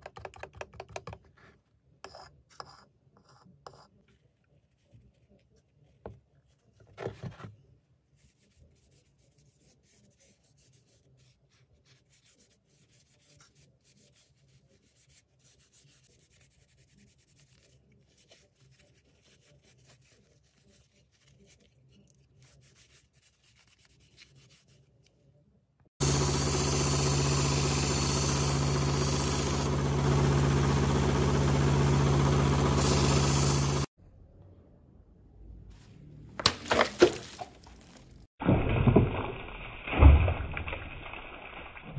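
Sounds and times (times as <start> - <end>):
belt sander humming: 26.0 - 33.9.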